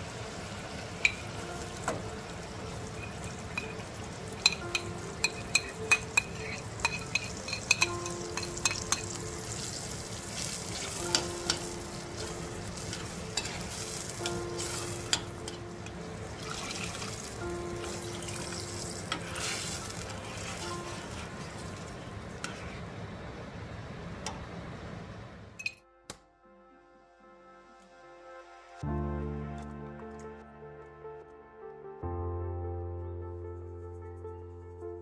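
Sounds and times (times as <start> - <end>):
sauce sizzling: 0.0 - 24.0
metal spoon clinking on pan: 1.0 - 1.3, 2.9 - 9.6, 10.7 - 15.6, 25.6 - 25.8.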